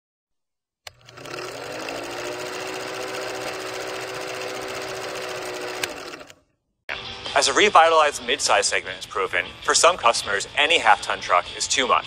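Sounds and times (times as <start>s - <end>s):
motor hum: 0.9s - 6.4s.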